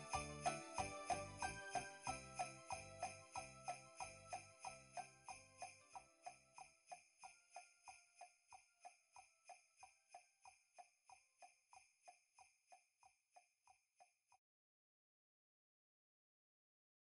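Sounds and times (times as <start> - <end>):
jingle bells shaken: 0.0 - 12.8.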